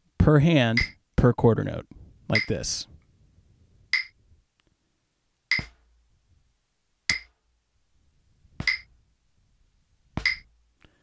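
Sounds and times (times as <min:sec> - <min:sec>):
drumsticks tapping practice pad: 0:00.8 - 0:01.0, 0:04.0 - 0:04.2, 0:05.5 - 0:05.8, 0:07.1 - 0:07.4, 0:08.6 - 0:08.9, 0:10.2 - 0:10.5.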